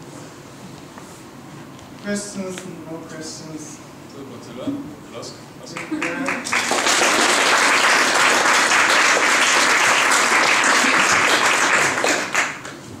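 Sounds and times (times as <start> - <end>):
audience applauding: 5.7 - 12.8.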